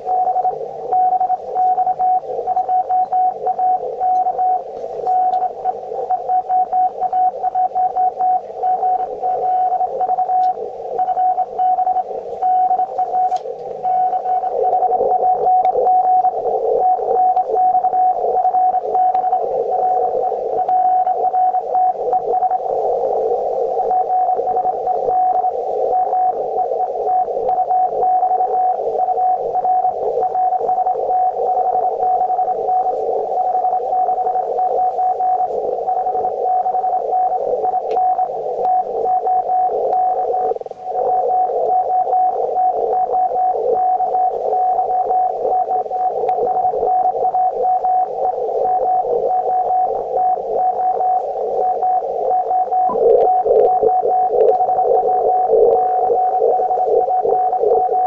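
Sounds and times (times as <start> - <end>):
morse code tone: 0.0 - 58.0
radio hiss and crackle: 0.0 - 58.0.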